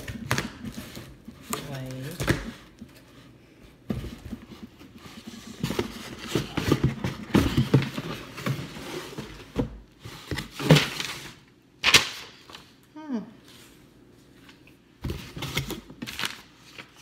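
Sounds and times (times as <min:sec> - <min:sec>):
cardboard scraping and crinkling: 0:00.0 - 0:11.4.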